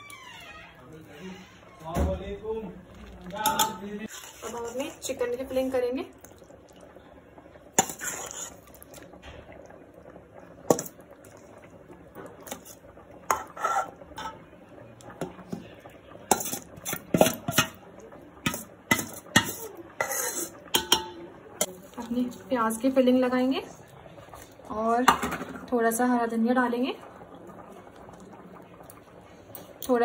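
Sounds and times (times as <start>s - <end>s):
metal spoon scraping metal bowl: 3.5s - 5.0s, 7.8s - 8.6s, 18.9s - 20.5s.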